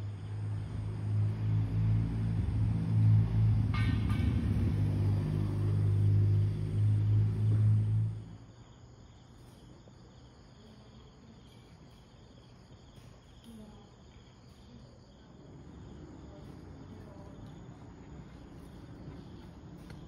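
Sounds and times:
loud low hum: 0.0s - 8.5s
crickets chirping: 0.0s - 20.0s.

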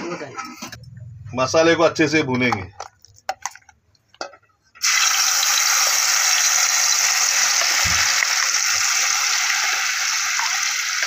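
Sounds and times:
paste sizzling in hot oil: 4.8s - 11.0s.

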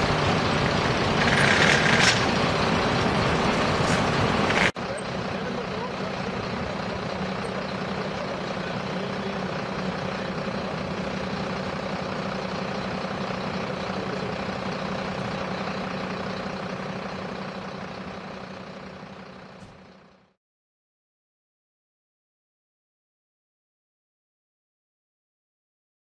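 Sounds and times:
engine idling: 0.0s - 20.4s.

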